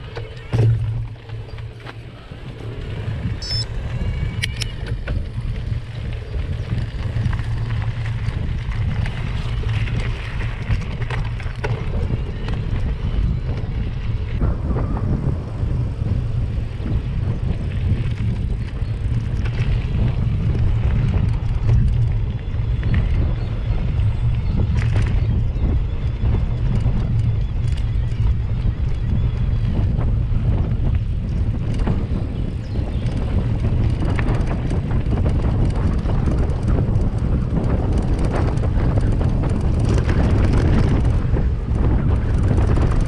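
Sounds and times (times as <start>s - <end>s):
tyres rolling over dirt: 0.0s - 25.4s
bike rattling: 0.0s - 43.0s
wind rumble on microphone: 0.0s - 43.0s.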